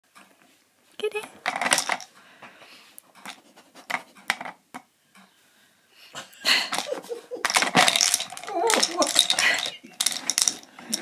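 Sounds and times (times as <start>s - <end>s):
plastic tubes clicking and rattling: 1.4s - 2.1s, 3.2s - 4.9s, 6.7s - 11.0s.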